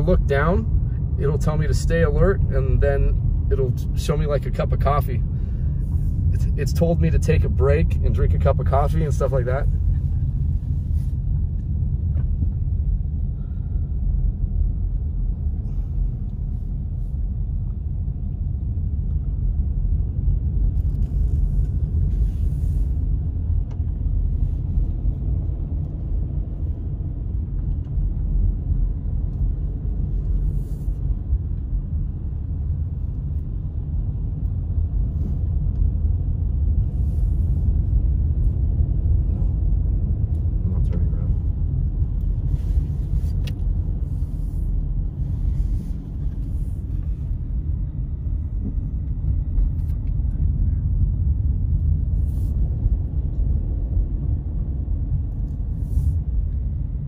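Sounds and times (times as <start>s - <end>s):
car interior engine rumble: 0.0s - 57.0s
tires on wet road: 20.4s - 51.1s.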